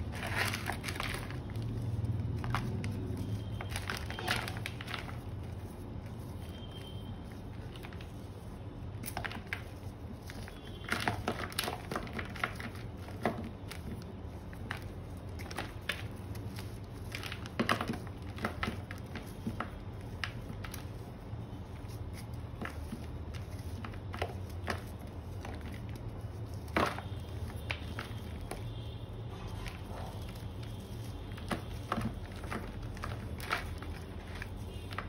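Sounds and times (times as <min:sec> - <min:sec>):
chalk crunching by hand: 0:00.0 - 0:35.0.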